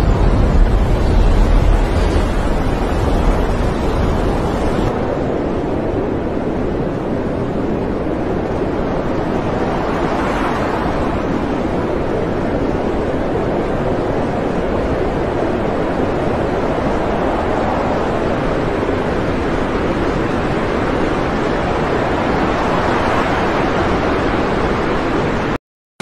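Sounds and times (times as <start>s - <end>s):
rough sea waves: 0.0s - 25.6s
storm wind: 0.0s - 25.6s
wind buffeting microphone: 0.0s - 25.6s.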